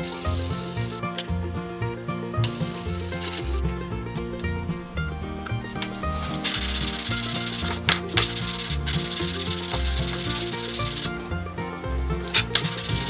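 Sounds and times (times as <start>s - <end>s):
wood plane rasping on sandpaper: 5.7s - 13.0s.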